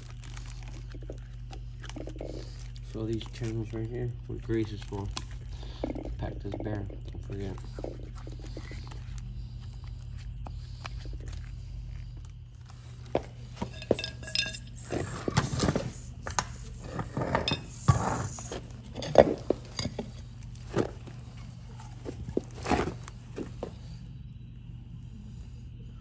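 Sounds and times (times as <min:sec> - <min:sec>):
metal parts clinking and knocking: 0:13.6 - 0:15.9, 0:16.9 - 0:17.8.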